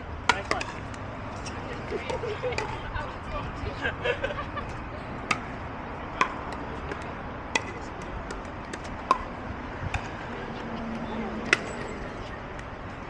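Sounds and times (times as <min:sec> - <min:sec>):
paddles hitting plastic ball: 0:00.3 - 0:02.8, 0:04.7 - 0:10.2.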